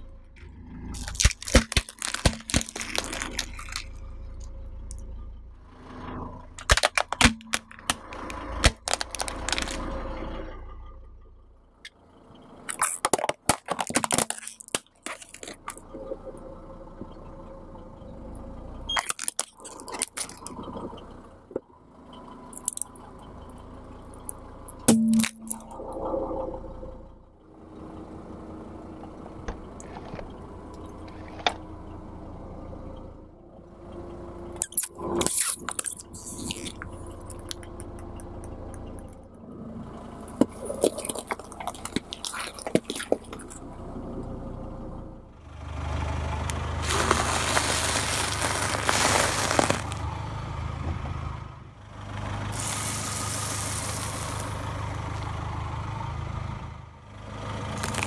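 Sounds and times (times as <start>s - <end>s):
car engine hum: 0.0s - 58.0s
tyres crushing objects on road: 0.4s - 4.4s, 6.5s - 10.4s, 12.6s - 16.2s, 18.9s - 21.6s, 22.5s - 23.4s, 24.1s - 25.8s, 34.6s - 39.1s, 40.0s - 43.8s, 46.5s - 50.2s, 52.4s - 55.3s, 57.7s - 58.0s
sharp cracks and snaps: 1.0s - 4.0s, 6.6s - 9.9s, 12.7s - 15.8s, 19.0s - 20.6s, 34.6s - 39.1s, 46.8s - 50.0s, 57.8s - 58.0s.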